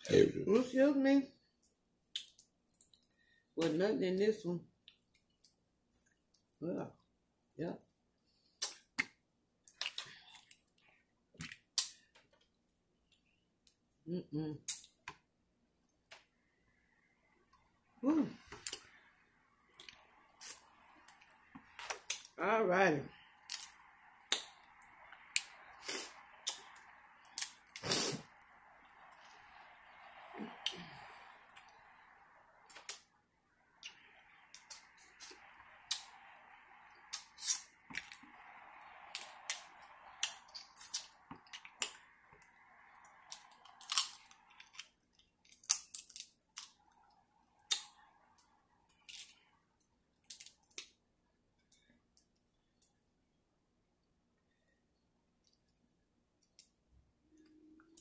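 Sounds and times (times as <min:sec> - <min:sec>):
faint steady hiss: 0:00.0 - 0:58.0
crab shells cracking: 0:43.2 - 0:44.9, 0:45.5 - 0:46.7.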